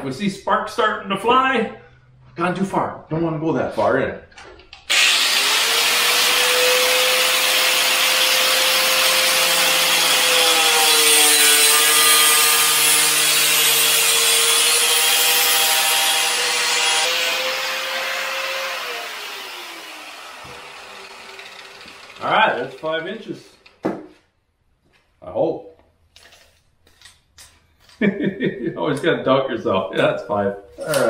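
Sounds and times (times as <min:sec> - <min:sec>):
angle grinder cutting plastic: 0:04.8 - 0:23.8
grinder wheel spinning down: 0:04.9 - 0:23.6.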